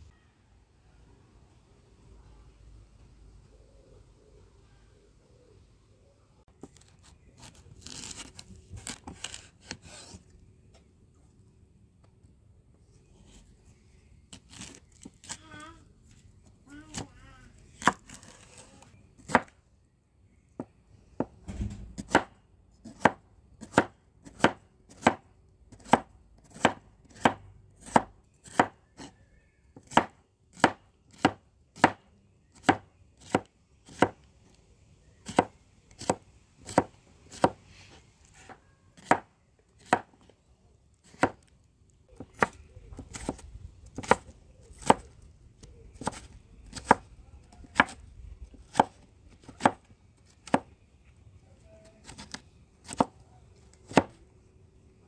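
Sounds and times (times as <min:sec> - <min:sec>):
knife chopping vegetables: 0:21.2 - 0:29.1, 0:29.8 - 0:34.2, 0:35.2 - 0:37.6, 0:38.3 - 0:40.2, 0:41.1 - 0:41.4, 0:42.2 - 0:45.1, 0:45.9 - 0:48.0, 0:48.6 - 0:49.8, 0:50.4 - 0:50.7, 0:53.8 - 0:54.2.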